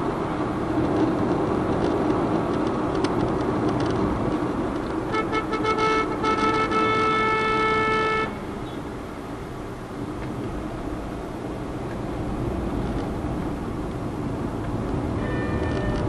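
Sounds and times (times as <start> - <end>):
road and tyre noise in car: 0.0 - 16.0
vehicle horn: 5.0 - 8.4, 15.2 - 16.0.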